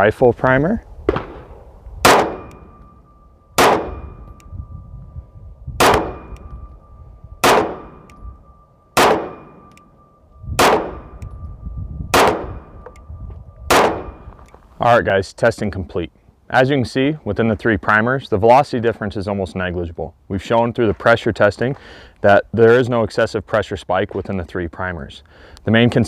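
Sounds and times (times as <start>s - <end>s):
pistol shots: 1.1s - 2.8s, 3.6s - 4.4s, 5.8s - 6.5s, 7.4s - 8.2s, 9.0s - 9.8s, 10.6s - 11.2s, 12.1s - 12.7s, 13.7s - 14.2s.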